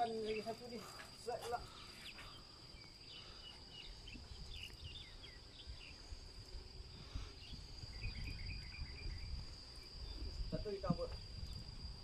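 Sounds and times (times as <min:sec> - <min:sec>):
high-pitched insect drone: 0:00.0 - 0:12.0
wind rumble on microphone: 0:03.9 - 0:12.0.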